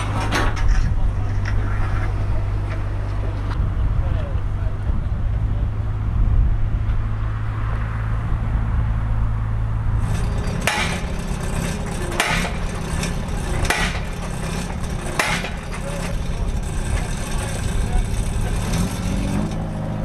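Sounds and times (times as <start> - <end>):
excavator engine running: 0.0 - 20.0
hammer striking steel pile: 10.0 - 19.5.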